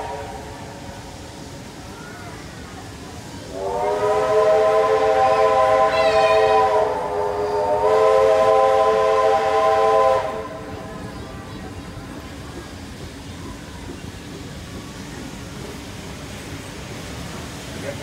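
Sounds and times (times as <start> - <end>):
steam locomotive whistle: 0.0 - 0.8, 3.5 - 10.8.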